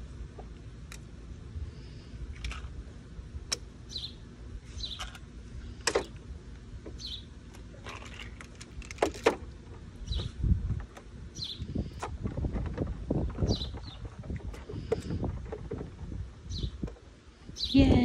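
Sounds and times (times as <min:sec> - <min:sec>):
bird chirping: 0:03.9 - 0:05.1, 0:07.0 - 0:07.3, 0:11.4 - 0:11.7.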